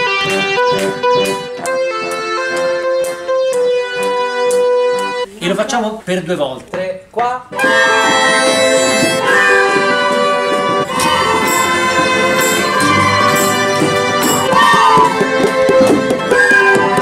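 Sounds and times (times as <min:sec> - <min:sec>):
sustained keyboard chords: 0:00.0 - 0:05.3, 0:07.5 - 0:17.0
bongos: 0:07.5 - 0:17.0
violin: 0:07.5 - 0:17.0.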